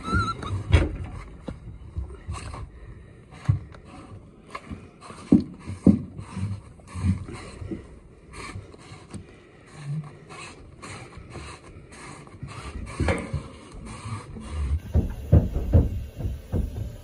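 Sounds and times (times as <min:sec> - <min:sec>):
breathing through a regulator: 0:02.1 - 0:17.0
gear scuffing and knocking: 0:14.8 - 0:17.0
heavy thumps: 0:14.8 - 0:17.0.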